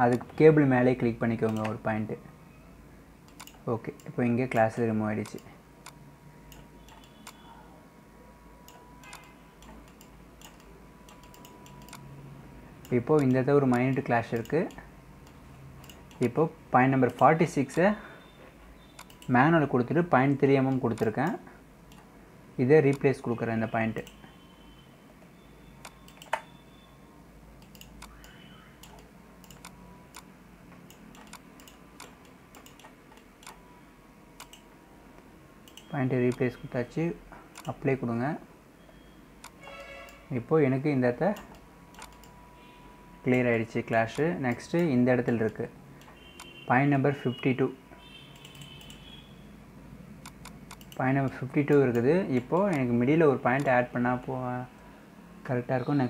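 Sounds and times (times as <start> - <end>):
faint whine and low hum: 0.0 - 56.0
computer mouse clicks: 0.1 - 0.4, 1.4 - 1.8, 3.3 - 7.5, 8.7 - 12.1, 12.8 - 16.4, 19.0 - 19.4, 20.6 - 22.1, 22.9 - 23.1, 25.8 - 26.5, 27.6 - 33.6, 34.4 - 36.5, 37.5 - 37.8, 39.4 - 40.2, 41.3 - 42.4, 44.1 - 46.6, 48.4 - 49.2, 50.2 - 52.9.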